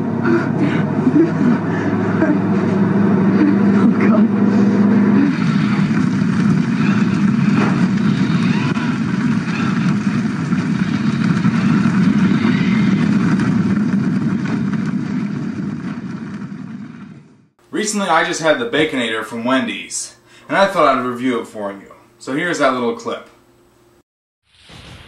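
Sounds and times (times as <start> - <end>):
low rumble of action sound effects: 0.0 - 19.3.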